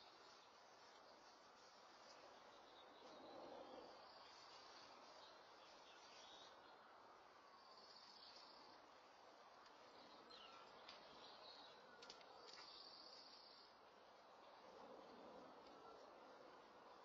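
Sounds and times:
faint outdoor hiss: 0.0 - 17.0.

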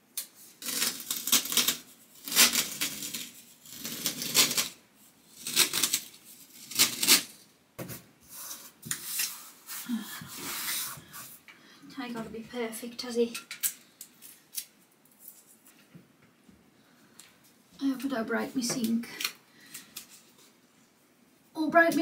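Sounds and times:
tape pulled off roll crackling: 0.1 - 7.4.

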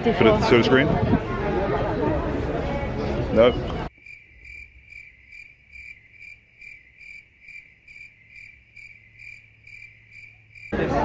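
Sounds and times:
cricket-like chirping: 3.9 - 10.8.

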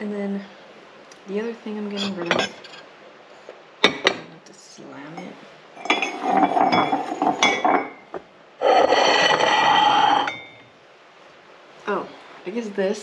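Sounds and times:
ceramic dishes clinking: 1.9 - 2.8, 3.8 - 4.2, 5.8 - 10.6
dish scraping on dish: 1.9 - 2.8, 5.8 - 10.6.

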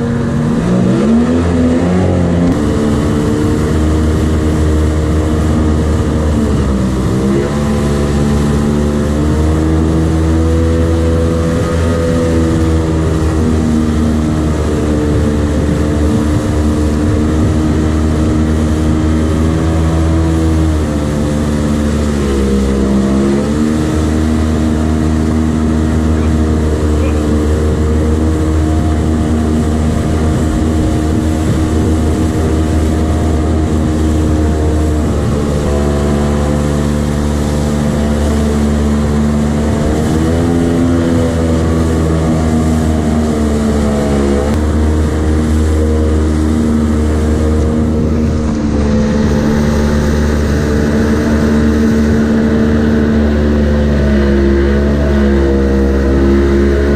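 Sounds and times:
jet boat motor running: 0.0 - 56.9
water rushing: 0.0 - 56.9
wind rushing: 25.0 - 42.8, 43.4 - 53.8.

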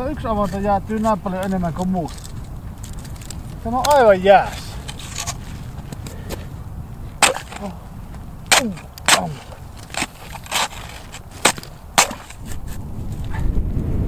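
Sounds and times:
ice chisel striking ice: 3.1 - 5.6, 7.2 - 7.8, 8.5 - 12.6.

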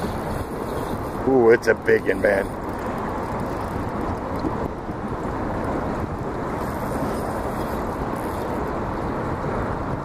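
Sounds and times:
choppy river water: 0.0 - 10.0
wind on microphone: 0.0 - 10.0.

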